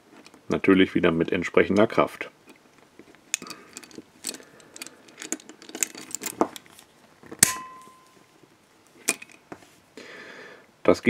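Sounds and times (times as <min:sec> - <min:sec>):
handcuff clicking and scraping: 0:02.4 - 0:08.1, 0:09.0 - 0:09.5
loud metal snap with ring: 0:07.4 - 0:08.2.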